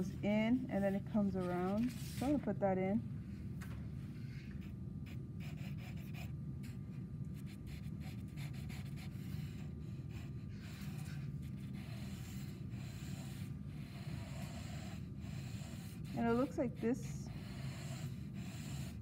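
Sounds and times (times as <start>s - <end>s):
steady low hum: 0.0s - 19.0s
crayon scratching on paper: 7.4s - 19.0s.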